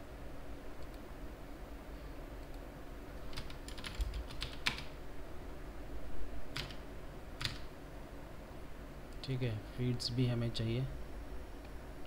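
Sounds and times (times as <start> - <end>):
computer keyboard keystrokes: 3.3 - 4.9, 6.6 - 6.8, 7.4 - 7.7.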